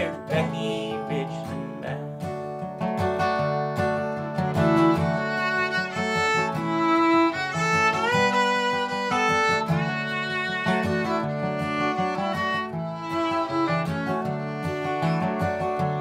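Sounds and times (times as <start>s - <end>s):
strummed acoustic guitar: 0.0s - 16.0s
fiddle playing bowed melody: 3.4s - 16.0s.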